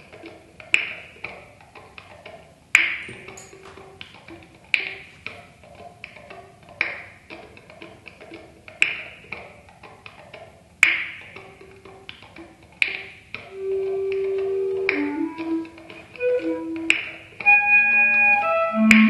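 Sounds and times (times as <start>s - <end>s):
soft ticks and pitched taps: 0.0s - 17.5s
clarinet keys clacking: 13.4s - 19.0s.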